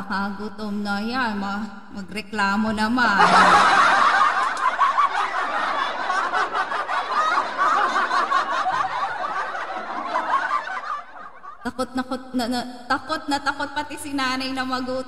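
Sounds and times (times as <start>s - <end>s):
laughter: 3.1s - 12.7s.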